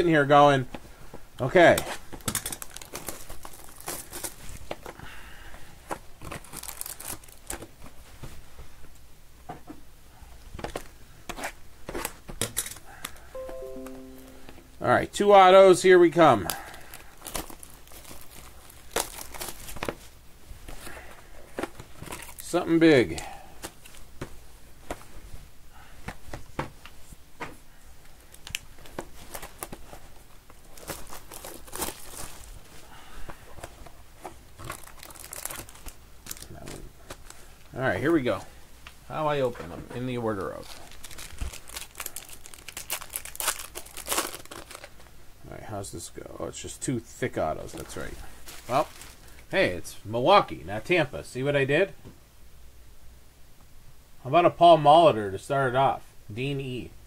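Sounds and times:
foil wrappers crinkling and tearing: 2.2 - 5.0, 5.9 - 8.0, 16.2 - 20.1, 20.8 - 22.6, 28.1 - 32.8, 34.4 - 37.6, 40.2 - 45.2, 47.6 - 49.5.

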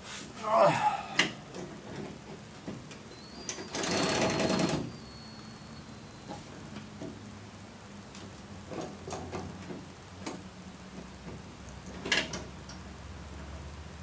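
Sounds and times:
ratchet clicking on a nut: 3.5 - 4.9.

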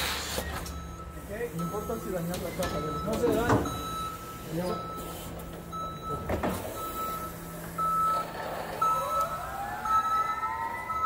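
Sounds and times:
forklift warning beeper: 0.4 - 11.0
machine whine: 6.6 - 11.0.

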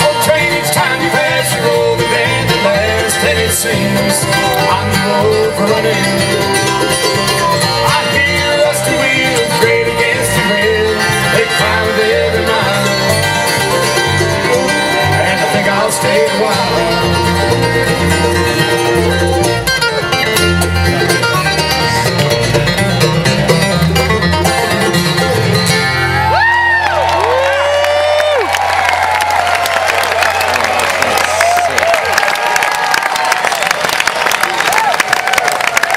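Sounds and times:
upright bass walking line: 0.0 - 26.3
mandolin: 0.0 - 26.5
acoustic guitars: 0.0 - 26.8
fiddle: 0.0 - 29.8
dobro: 0.0 - 30.2.

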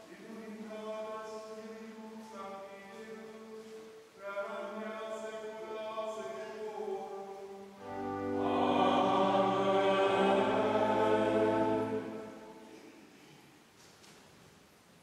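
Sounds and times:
lone voice singing: 0.0 - 12.6
choir chanting: 4.6 - 12.9.

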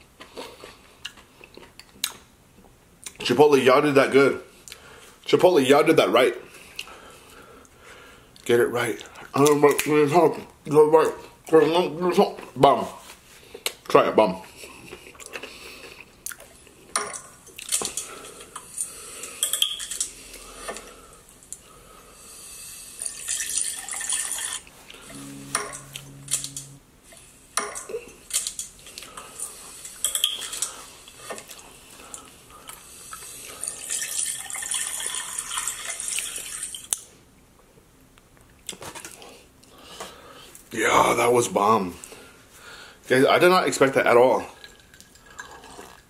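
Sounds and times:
chewing with wet mouth noises: 0.2 - 2.2, 14.8 - 16.8
closed-mouth hum: 25.1 - 26.9.

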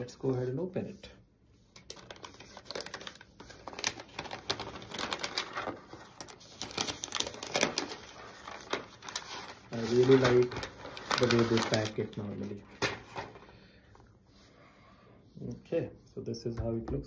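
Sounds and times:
paper rustling and crinkling: 1.6 - 14.5.

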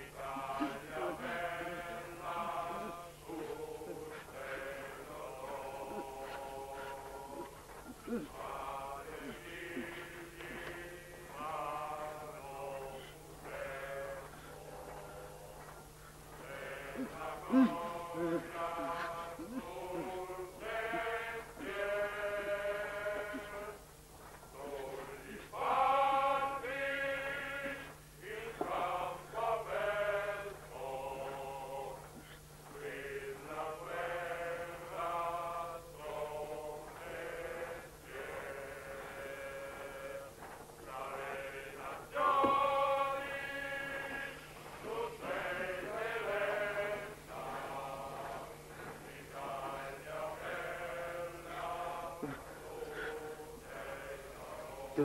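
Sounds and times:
men singing chant: 0.0 - 15.7, 16.3 - 23.9, 24.5 - 55.0.

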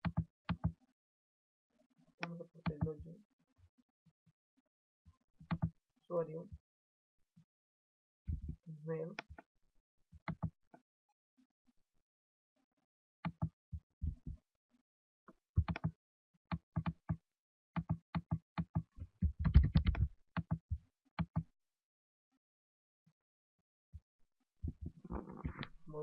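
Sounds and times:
computer keyboard typing: 19.4 - 20.6.

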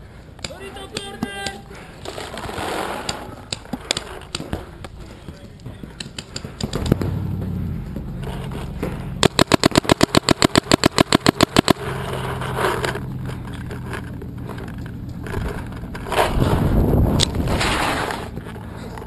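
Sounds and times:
paintball marker rapid firing: 2.4 - 4.8, 5.7 - 7.2, 9.2 - 12.1.

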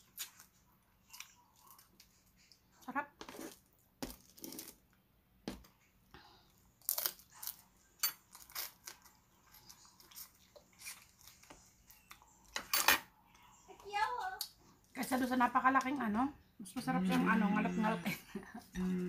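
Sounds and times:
person chewing: 0.0 - 2.6, 6.7 - 12.6
cracking crab shells: 6.8 - 11.3.

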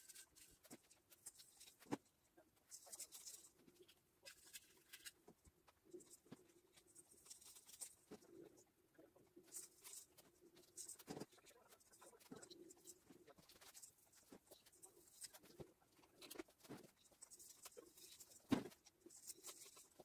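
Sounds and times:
artificial tree branches rustling: 0.0 - 8.6.

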